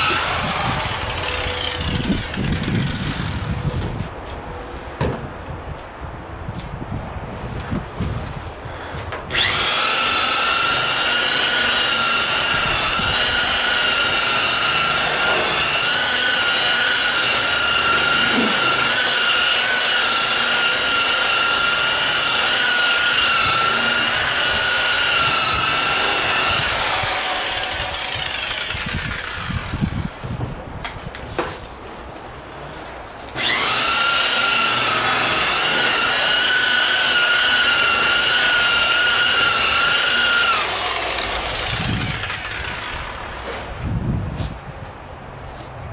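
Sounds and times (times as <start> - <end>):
electric buffer whine: 0.0 - 3.6, 9.3 - 30.3, 33.4 - 43.4.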